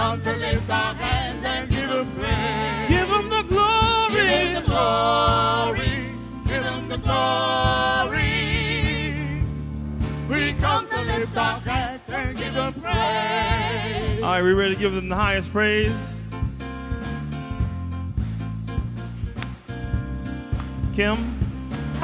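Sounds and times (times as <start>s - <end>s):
person singing gospel: 0.0s - 9.6s, 10.3s - 16.2s
bass line: 0.0s - 22.0s
keyboard accompaniment: 0.0s - 22.0s.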